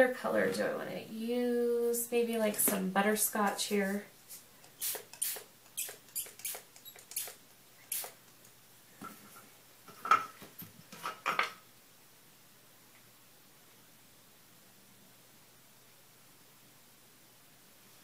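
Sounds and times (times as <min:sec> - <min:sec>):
spray bottle squirting: 0:04.6 - 0:08.2.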